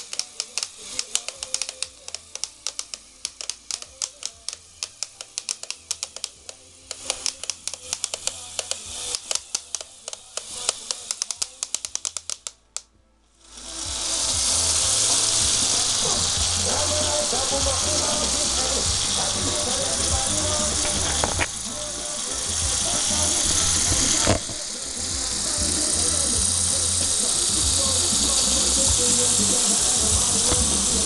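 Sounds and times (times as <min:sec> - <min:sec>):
gears clicking as they slip: 0:00.0 - 0:12.9, 0:14.0 - 0:31.0
loud steady hiss: 0:13.5 - 0:31.0.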